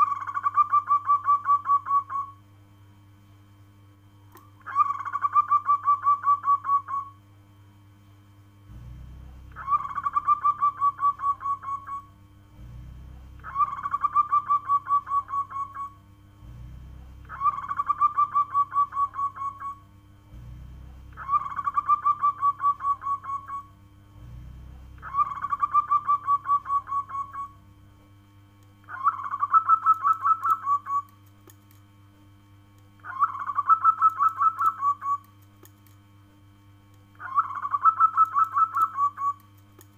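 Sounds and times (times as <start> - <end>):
dove cooing: 0.0 - 2.4, 4.6 - 7.2, 9.5 - 12.8, 13.4 - 19.8, 20.4 - 24.4, 25.0 - 27.6, 28.8 - 31.1, 33.0 - 35.3, 37.2 - 39.4.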